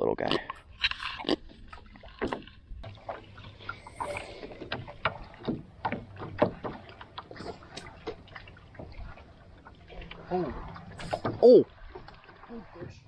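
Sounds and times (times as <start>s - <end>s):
knocks and taps on boat: 4.5s - 10.1s, 10.8s - 13.0s.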